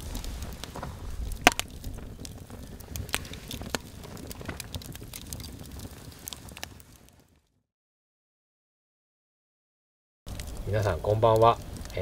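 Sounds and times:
bonfire crackling and popping: 0.0s - 7.6s, 10.3s - 12.0s.

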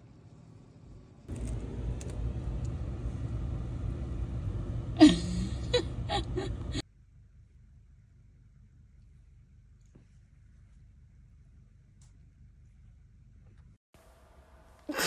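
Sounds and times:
low outdoor rumble: 0.8s - 15.0s.

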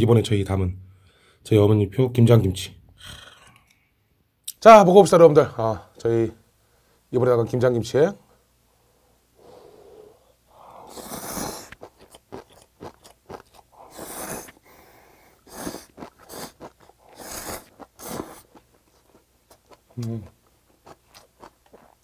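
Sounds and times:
person slurping noodles: 10.7s - 18.5s
wet chewing and lip smacks: 10.9s - 14.8s, 15.4s - 22.0s.

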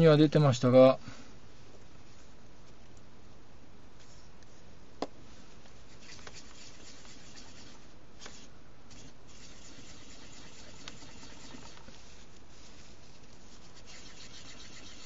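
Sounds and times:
hands scratching and rubbing camera: 5.8s - 15.0s.

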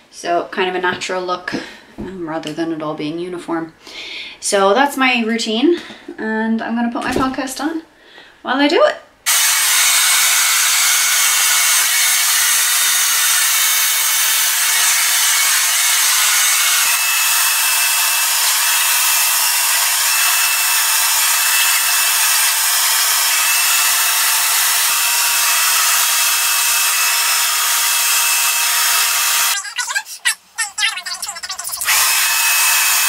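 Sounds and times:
hair dryer blowing: 9.3s - 29.6s, 31.8s - 33.0s.

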